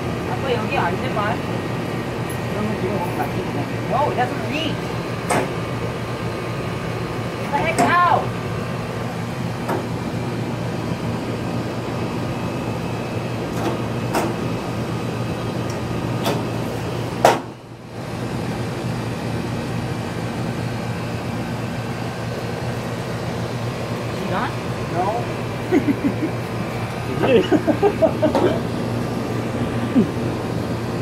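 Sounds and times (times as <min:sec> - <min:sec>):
low mechanical hum: 0:00.0 - 0:31.0.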